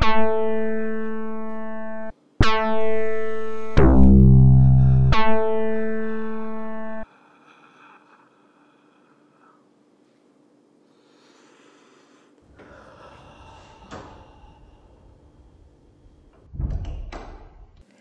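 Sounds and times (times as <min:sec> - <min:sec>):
sustained music note: 0:02.7 - 0:07.0
faint room noise: 0:07.0 - 0:18.0.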